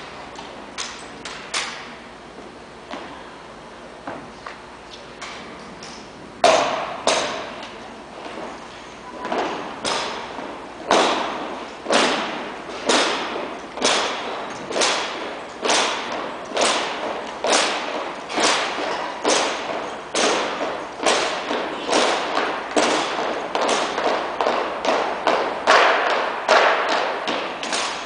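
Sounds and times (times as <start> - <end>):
feet stamping on wooden floor: 9.2 - 27.7.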